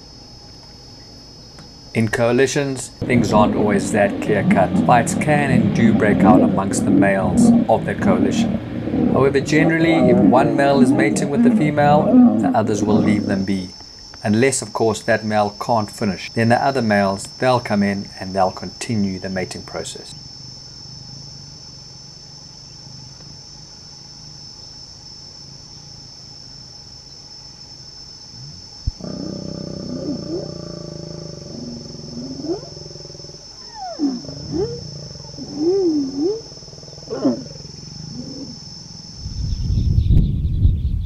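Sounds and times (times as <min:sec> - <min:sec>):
lions growling and snarling: 0:03.0 - 0:13.5, 0:28.4 - 0:38.8
loud low rumble: 0:03.0 - 0:13.5.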